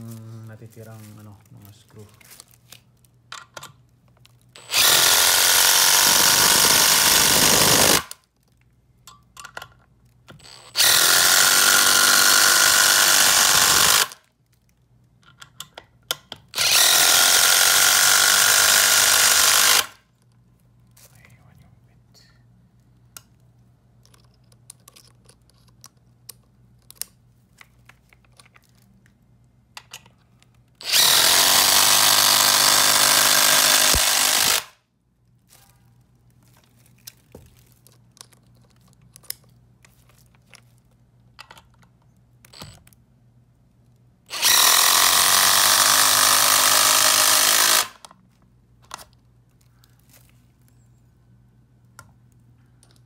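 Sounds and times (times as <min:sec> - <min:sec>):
power driver driving screws into wood: 0:04.6 - 0:08.2, 0:10.3 - 0:14.2, 0:16.6 - 0:20.0, 0:30.8 - 0:34.8, 0:44.3 - 0:48.1.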